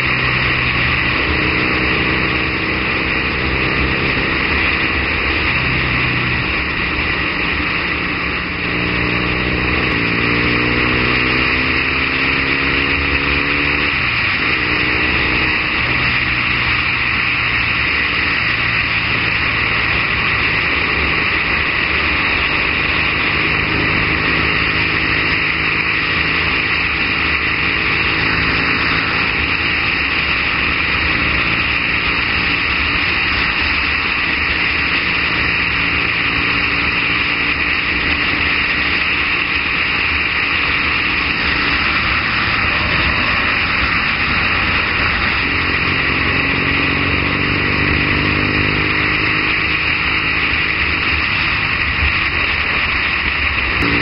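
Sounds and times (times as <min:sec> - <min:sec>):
motorcycle engine running: 0:00.0 - 0:54.0
wind noise on microphone: 0:40.1 - 0:54.0.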